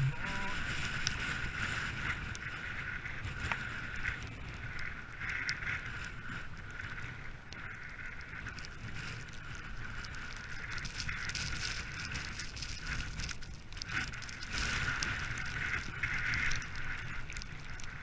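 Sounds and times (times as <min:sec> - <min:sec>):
low rumble: 0:00.0 - 0:01.4
small ticks: 0:02.1 - 0:18.0.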